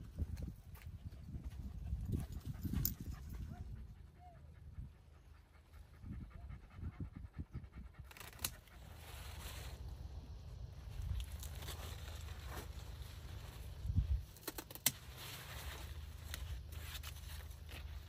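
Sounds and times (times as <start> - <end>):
wind rumbling on microphone: 0.0 - 14.4
dog panting: 1.7 - 8.1
rustle: 8.0 - 18.0.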